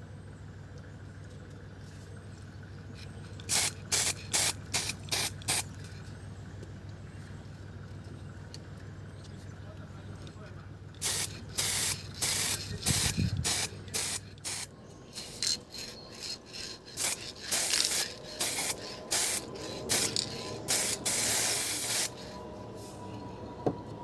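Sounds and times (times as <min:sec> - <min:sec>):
aerosol spray can spraying: 0:11.0 - 0:15.4, 0:17.0 - 0:22.2.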